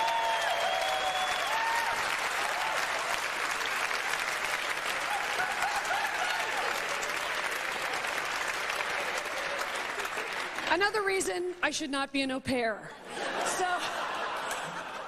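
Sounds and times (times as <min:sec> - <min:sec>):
audience applauding: 0:00.0 - 0:10.8
people laughing: 0:05.0 - 0:08.0, 0:08.8 - 0:10.6, 0:12.9 - 0:15.0.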